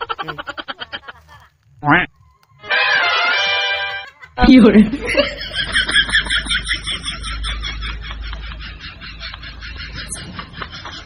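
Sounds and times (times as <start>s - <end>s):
low steady hum: 4.4s - 11.0s
rapid bird-like chirping: 8.7s - 10.7s.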